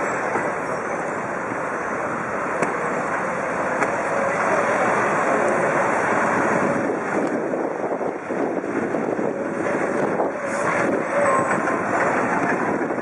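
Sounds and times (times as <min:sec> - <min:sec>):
city traffic hum: 0:00.0 - 0:13.0
wind rushing over microphone: 0:05.2 - 0:13.0.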